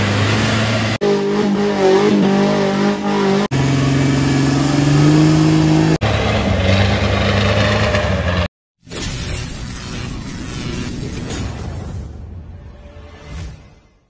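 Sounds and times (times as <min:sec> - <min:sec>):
off-road engines revving: 0:00.0 - 0:08.5.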